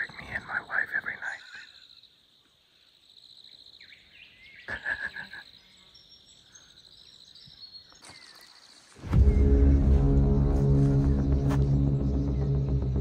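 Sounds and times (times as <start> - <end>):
insects chirring: 0.0 - 12.8.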